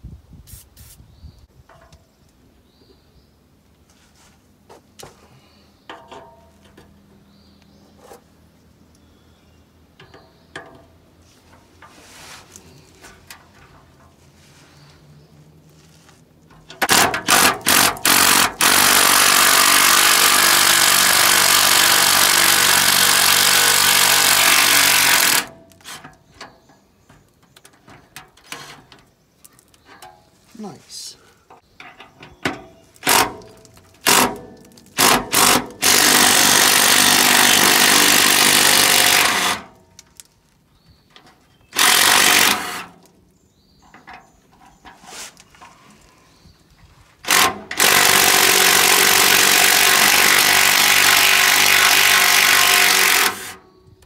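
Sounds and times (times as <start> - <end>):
impact wrench hammering: 16.7 - 25.6, 32.5 - 39.7, 41.8 - 42.9, 47.2 - 53.6.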